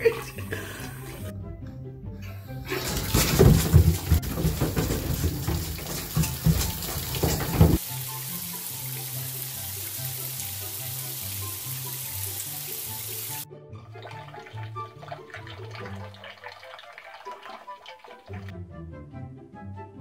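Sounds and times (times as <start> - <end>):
slow low-note background music: 0.0 - 2.8, 7.8 - 17.3
water splashing in a bathtub: 2.7 - 18.5.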